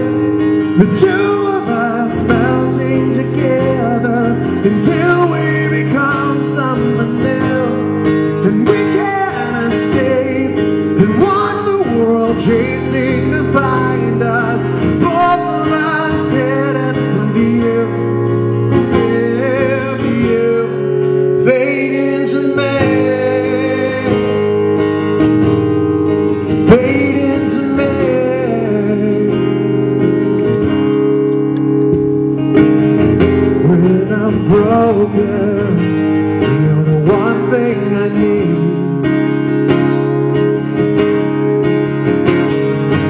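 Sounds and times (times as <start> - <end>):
person singing: 0.0 - 18.2, 18.8 - 24.8, 26.6 - 29.9, 33.5 - 39.2
acoustic guitar playing: 0.0 - 43.0.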